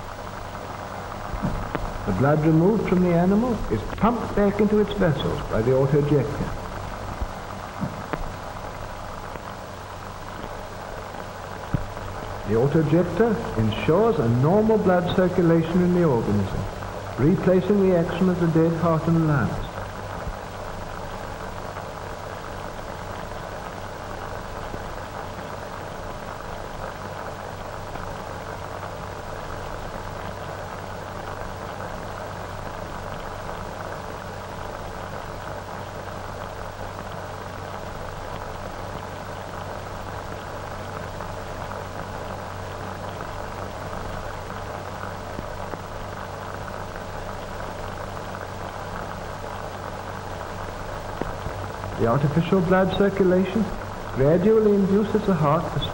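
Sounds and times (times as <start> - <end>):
low hum: 0.0 - 25.5
film soundtrack hiss and crackle: 0.0 - 55.9.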